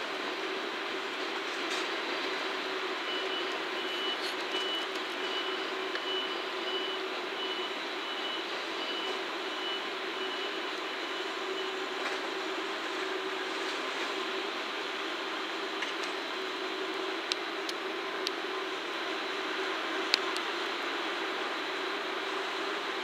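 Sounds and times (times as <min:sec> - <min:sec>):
diesel railcar engine hum: 0:00.0 - 0:23.0.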